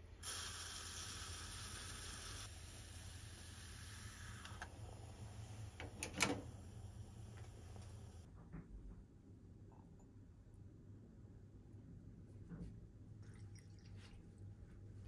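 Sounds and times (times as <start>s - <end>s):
stovetop coffee maker hissing: 0.0s - 8.3s.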